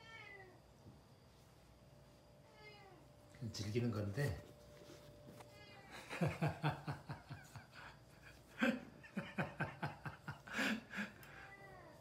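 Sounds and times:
man chuckling: 6.1 - 11.3.

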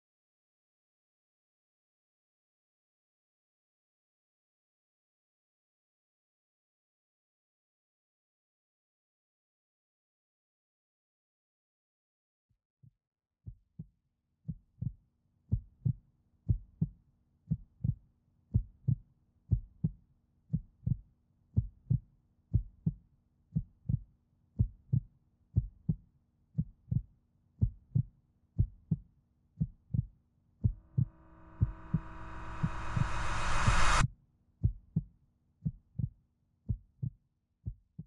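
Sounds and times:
heartbeat thumps: 29.9 - 34.0
faint hum: 30.9 - 34.0.

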